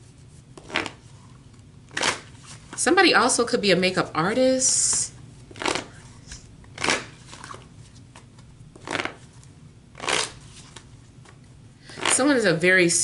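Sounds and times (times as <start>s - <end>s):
papery rustles of cards: 5.6s - 12.2s.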